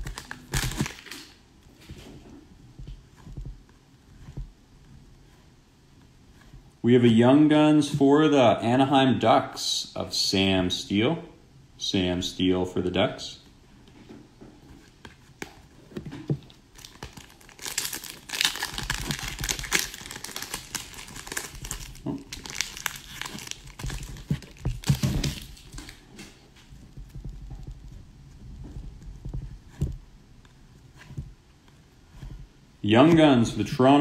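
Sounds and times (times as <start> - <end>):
foil wrapper crinkling and tearing: 0.0 - 1.4, 16.7 - 26.0.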